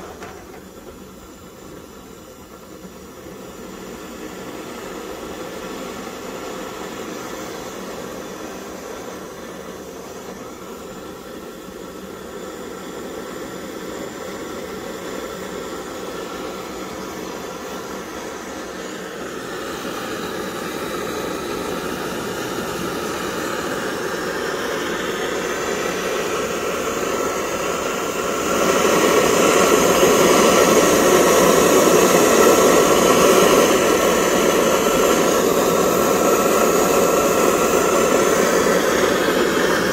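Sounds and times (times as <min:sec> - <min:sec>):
stove burner hissing: 0:00.0 - 0:39.9.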